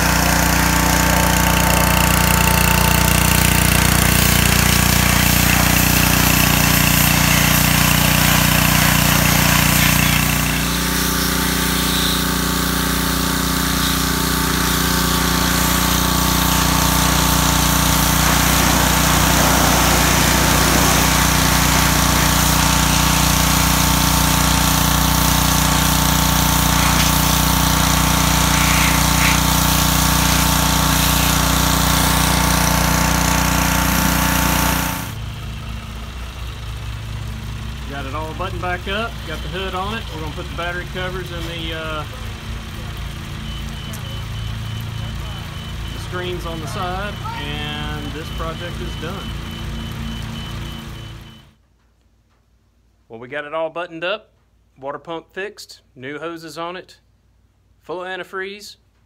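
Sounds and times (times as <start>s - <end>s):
water jet hissing: 0.0s - 35.2s
pressure washer motor drone: 0.0s - 51.6s.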